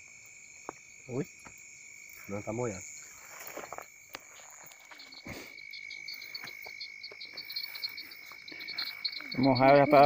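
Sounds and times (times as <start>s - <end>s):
high-pitched insect trill: 0.0s - 10.0s
rapid pulsing frog calls: 4.8s - 10.0s.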